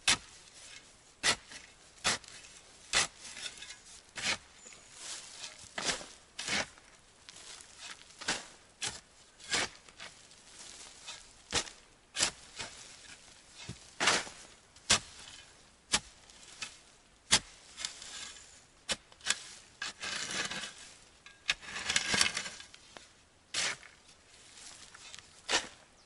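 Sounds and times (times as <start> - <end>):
shovel scraping soil: 0.0 - 26.0
leaves rustling: 1.6 - 17.0, 23.8 - 26.0.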